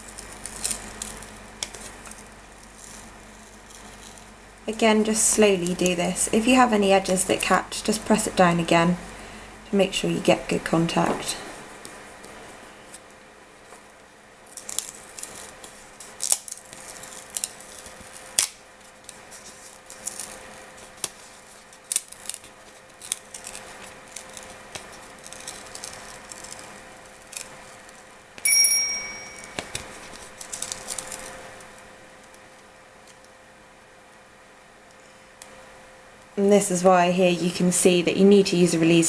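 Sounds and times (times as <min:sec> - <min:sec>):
plastic sheet peeling crackles: 0:00.0 - 0:07.5, 0:10.9 - 0:28.4, 0:29.5 - 0:33.3
faint steady hum: 0:00.0 - 0:39.0
metallic ping: 0:28.4 - 0:29.6.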